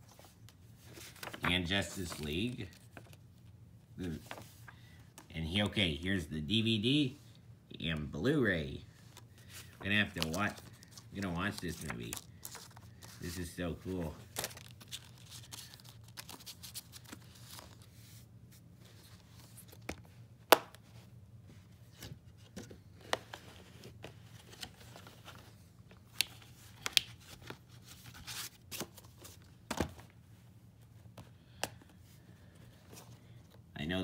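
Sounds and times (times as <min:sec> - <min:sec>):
paper rustling: 0:00.0 - 0:03.3, 0:04.0 - 0:04.8, 0:08.9 - 0:20.1, 0:21.6 - 0:30.1.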